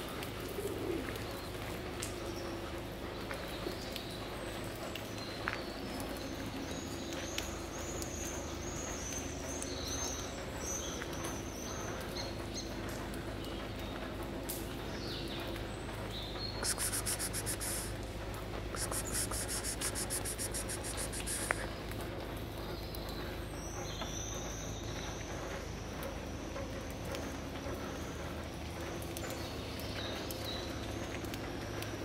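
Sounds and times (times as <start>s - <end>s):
steady low hum: 12.3s - 23.7s
thin high chirps: 16.6s - 17.9s
insect trilling: 16.6s - 18.0s, 18.8s - 21.7s.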